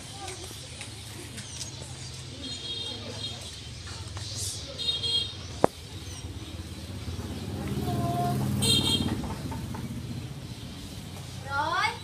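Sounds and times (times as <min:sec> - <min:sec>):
vehicle engine passing: 0:05.8 - 0:11.8
horn toot: 0:08.5 - 0:09.2.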